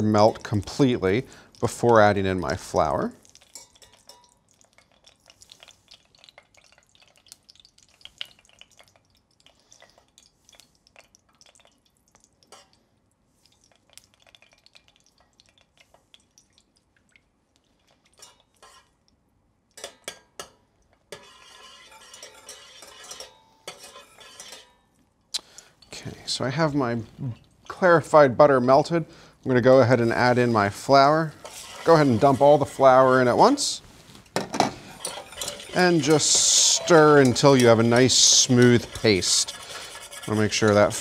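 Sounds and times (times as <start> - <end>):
whisk scraping metal saucepan: 2.0 - 4.3, 18.2 - 18.9, 21.1 - 24.8, 29.6 - 33.8, 34.7 - 41.0
butter hissing: 29.9 - 34.0, 34.8 - 41.0.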